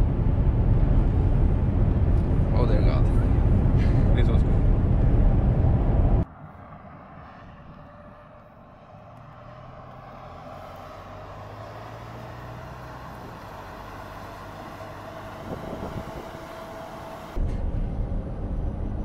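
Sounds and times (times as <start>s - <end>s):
loud low rumble: 0.0s - 6.9s, 13.0s - 19.0s
tyre and road rumble: 0.0s - 19.0s.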